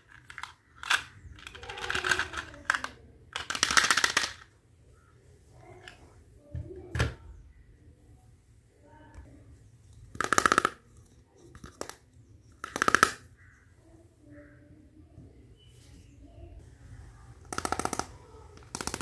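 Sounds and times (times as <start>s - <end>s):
plastic toy pieces clicking: 0.0s - 4.5s, 10.1s - 13.3s, 17.4s - 19.0s.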